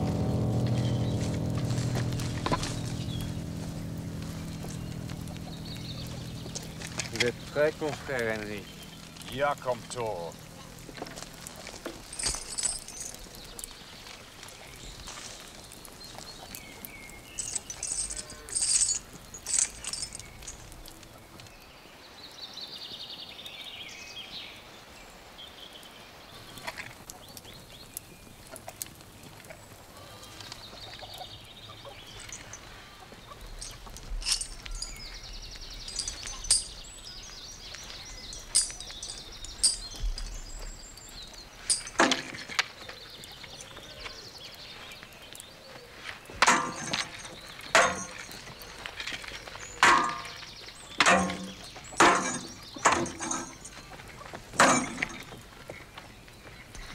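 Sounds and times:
weapons clashing against shield: 47.8 - 48.2, 49.8 - 50.4, 51.0 - 53.6.

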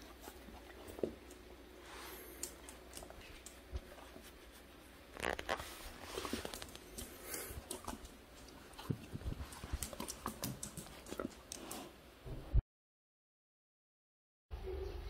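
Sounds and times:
dog claws on wooden floor: 6.2 - 11.9.

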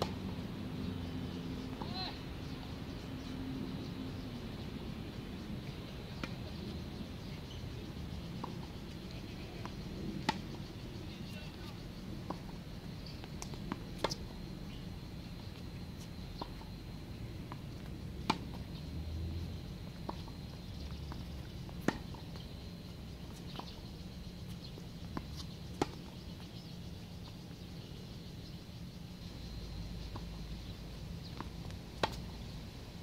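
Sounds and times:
tennis ball hit by rackets: 9.6 - 10.4, 18.2 - 18.6, 21.7 - 22.2, 32.0 - 32.2.

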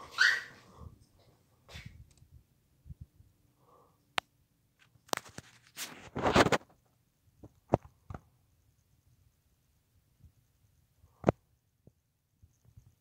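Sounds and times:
rustling noise: 4.8 - 8.3.

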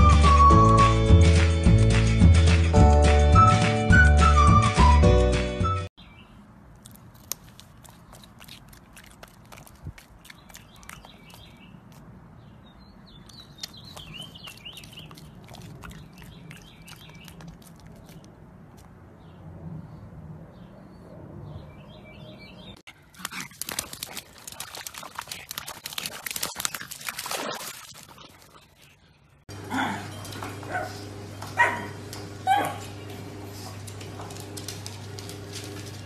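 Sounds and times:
small crunching clicks: 6.7 - 12.0
birds chirping: 10.1 - 22.8
dog splashing in muddy water: 13.4 - 18.2, 22.9 - 28.9.

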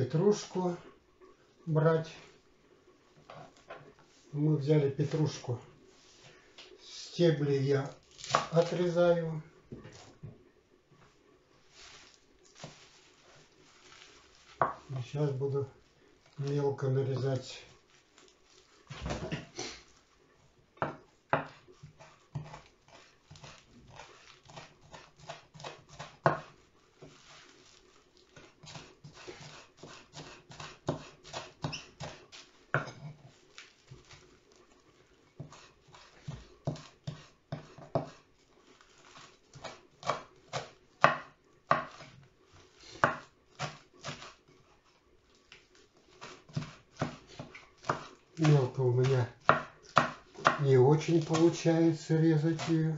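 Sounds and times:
knife chopping on wooden board: 8.2 - 8.7, 14.6 - 14.9, 20.8 - 26.6, 28.4 - 33.2, 35.4 - 38.2, 39.2 - 42.2, 42.9 - 44.4, 46.2 - 51.6, 52.5 - 52.7.

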